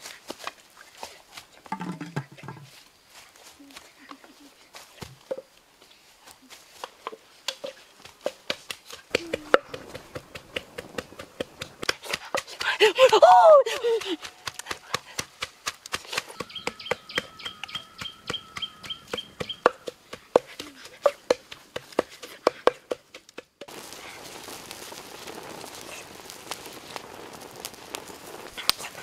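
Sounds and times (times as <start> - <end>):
pot boiling over hissing: 0.0 - 29.0
pestle pounding in mortar: 8.2 - 12.7, 14.4 - 23.7
thin steady whistle: 16.3 - 19.8.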